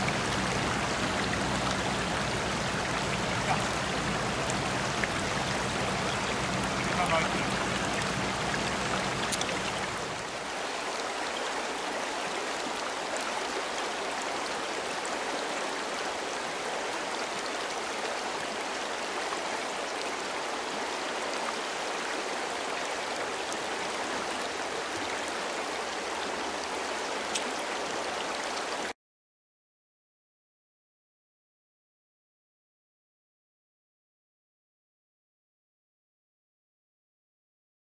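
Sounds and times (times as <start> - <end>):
river flowing over stones: 0.0 - 28.9.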